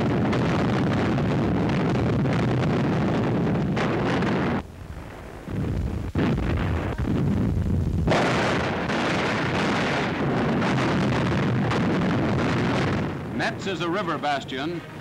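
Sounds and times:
artillery firing: 0.0 - 14.4
continuous gunfire: 8.1 - 14.4.

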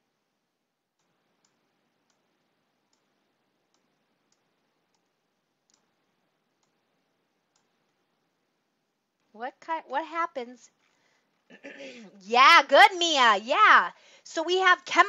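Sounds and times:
computer mouse clicks: 1.0 - 2.3, 2.9 - 3.1, 3.7 - 6.0, 6.6 - 6.8, 7.5 - 7.8.

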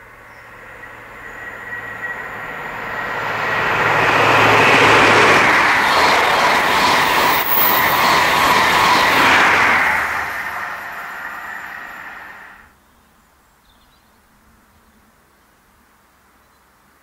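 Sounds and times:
train passing at speed: 0.0 - 12.7.

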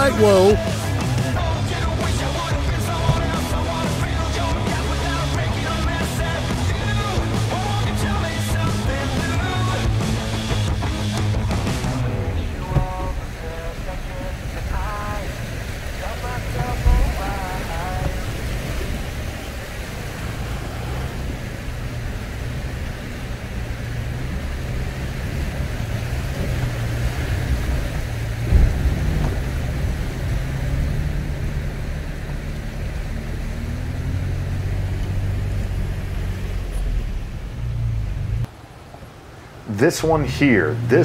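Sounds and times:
truck engine running: 0.0 - 38.5
thump: 3.0 - 3.4.

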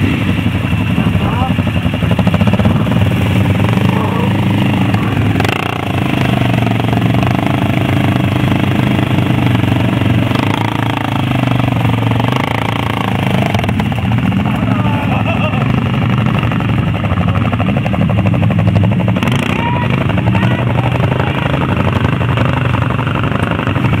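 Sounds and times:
quad engine running hard: 0.0 - 24.0.

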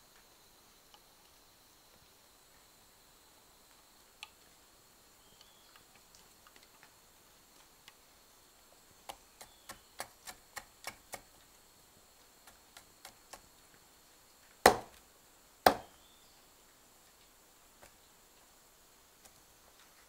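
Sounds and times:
machete chopping bamboo: 9.1 - 11.3, 14.6 - 15.0, 15.7 - 16.0
machete tapping bamboo: 14.7 - 15.0, 15.7 - 16.0.

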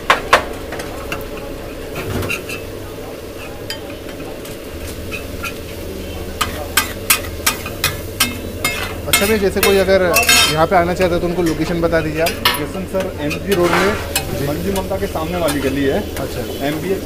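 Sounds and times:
food sizzling on a griddle: 0.0 - 17.0
metal masher scraping griddle: 6.4 - 17.0.

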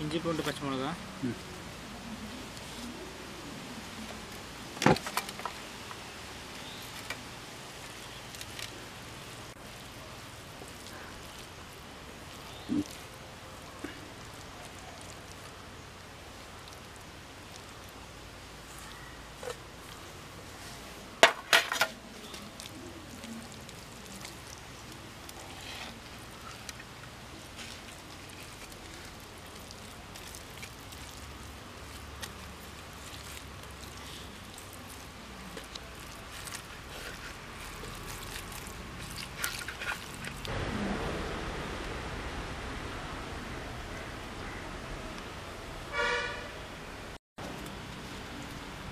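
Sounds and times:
hands squelching wet paste: 0.2 - 40.5
low rumble: 40.4 - 45.9.

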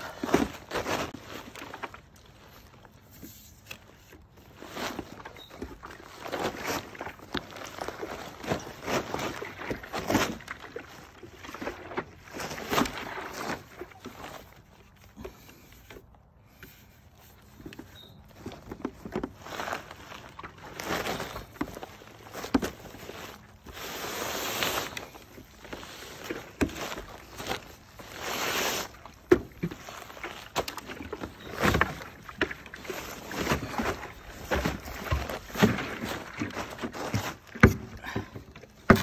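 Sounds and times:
plastic tarp crinkling: 0.0 - 15.2, 18.2 - 39.0
plastic cooler knocking and scraping: 29.2 - 39.0.

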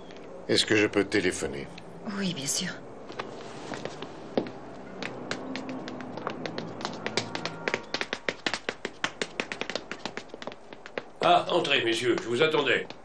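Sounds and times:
hard-soled footsteps on stairs: 3.1 - 13.0.

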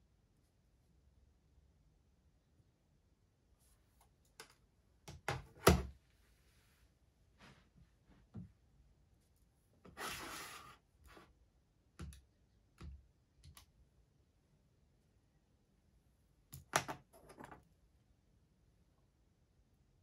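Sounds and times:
calculator scraping on desk: 9.9 - 11.2.

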